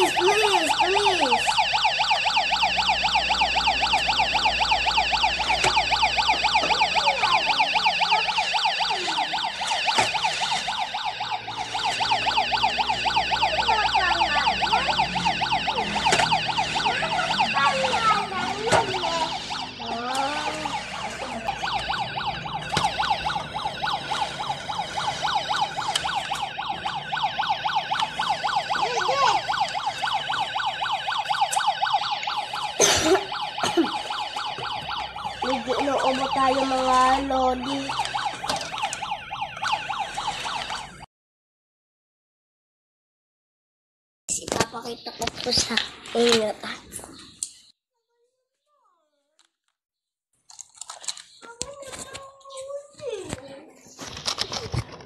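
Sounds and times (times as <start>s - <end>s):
toy siren warbling: 0.0s - 41.0s.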